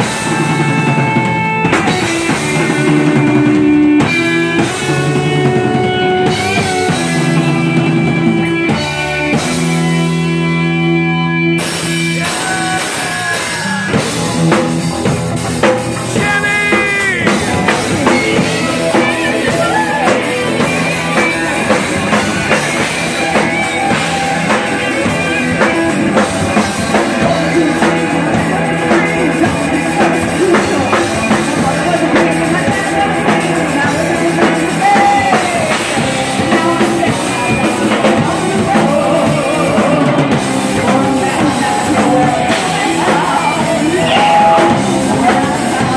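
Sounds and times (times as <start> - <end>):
rock band playing loudly: 0.0 - 45.9
woman singing: 31.8 - 45.9.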